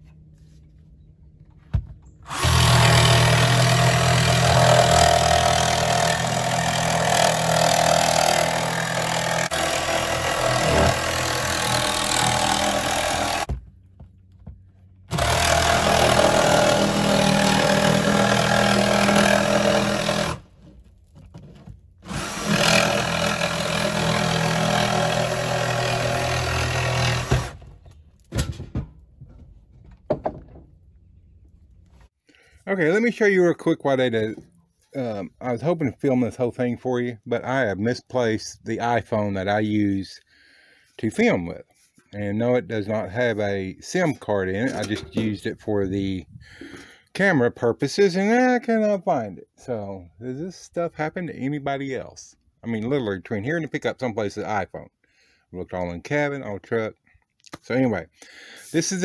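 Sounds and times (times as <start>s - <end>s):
jigsaw cutting wood: 2.3s - 13.5s, 15.1s - 20.5s, 22.0s - 27.6s.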